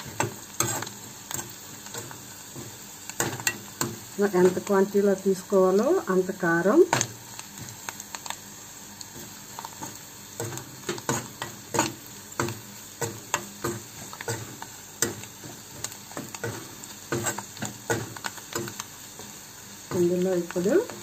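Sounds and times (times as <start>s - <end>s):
metal spoon scraping a pan: 0.0s - 4.6s, 9.2s - 20.1s
faint sizzle: 0.0s - 21.0s.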